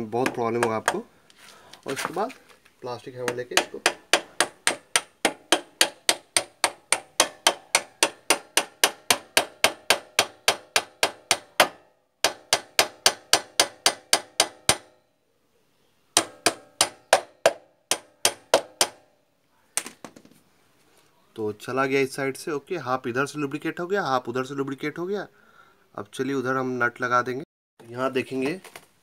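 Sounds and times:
plastic hammer tapping metal shaft: 0.0s - 1.0s, 3.2s - 14.9s, 16.2s - 19.0s.

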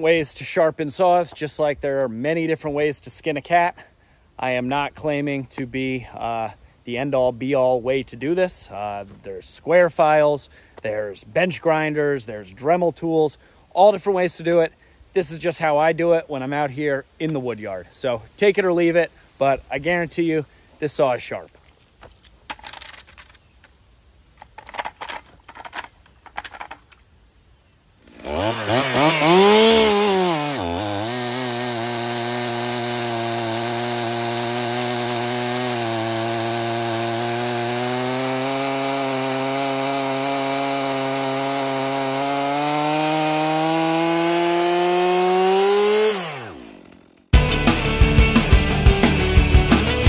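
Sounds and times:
chainsaw cutting log: 28.0s - 47.5s.

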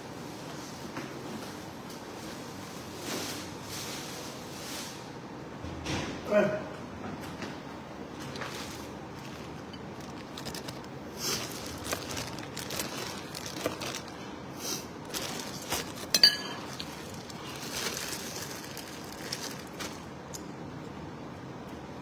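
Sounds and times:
plastic bags crinkling: 8.3s - 20.4s.

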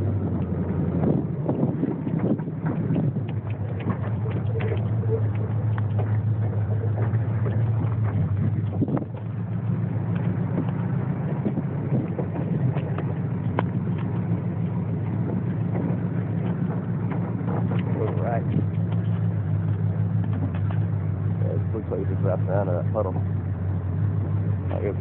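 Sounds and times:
car engine driving: 0.0s - 25.0s
knocks and rattles over bumps: 0.0s - 25.0s.

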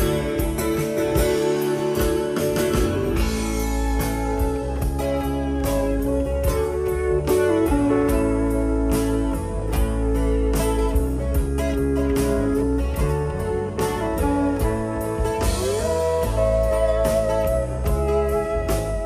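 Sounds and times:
bass guitar fills: 0.0s - 19.0s
live band playing: 0.0s - 19.0s.

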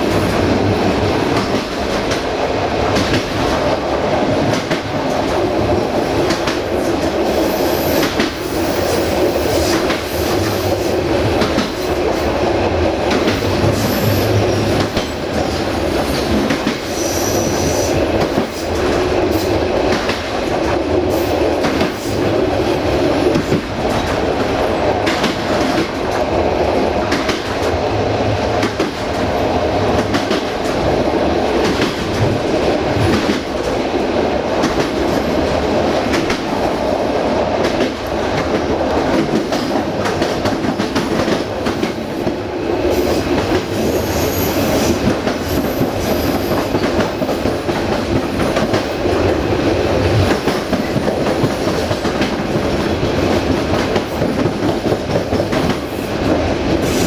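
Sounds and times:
train wheels clattering: 0.0s - 26.3s, 43.0s - 57.0s.

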